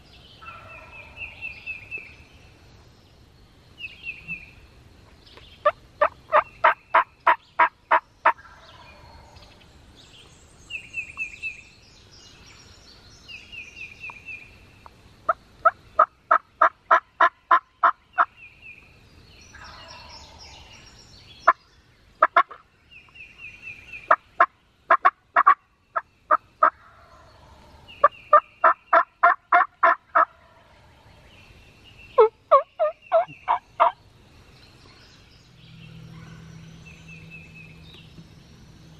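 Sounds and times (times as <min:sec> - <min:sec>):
songbird trilling: 0:31.9 - 0:34.0
turkey yelping: 0:32.2 - 0:34.0.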